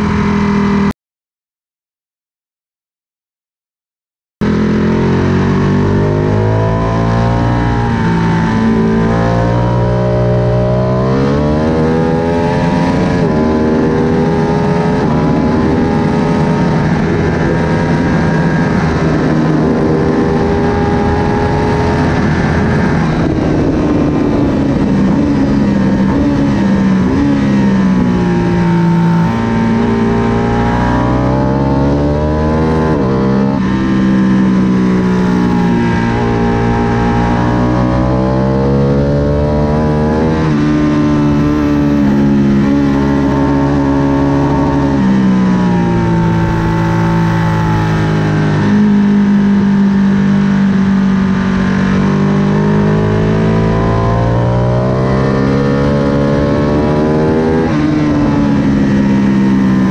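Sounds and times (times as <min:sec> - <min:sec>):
motorcycle engine revving: 0:00.0 - 0:00.9, 0:04.4 - 0:59.9
wind rush: 0:07.4 - 0:49.8.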